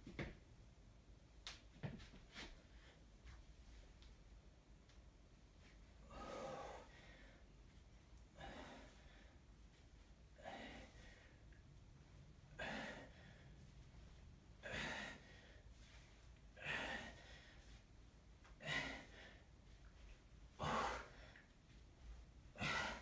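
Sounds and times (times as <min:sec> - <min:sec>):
man breathing hard: 0:06.0 - 0:07.6, 0:08.3 - 0:09.5, 0:10.4 - 0:11.6, 0:12.5 - 0:13.8, 0:14.6 - 0:17.9, 0:18.5 - 0:19.6, 0:20.5 - 0:21.6, 0:22.5 - 0:23.0.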